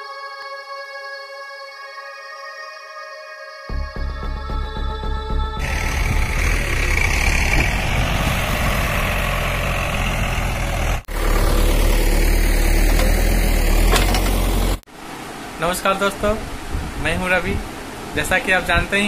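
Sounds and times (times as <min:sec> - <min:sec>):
diesel engine running: 0:05.6 - 0:14.9.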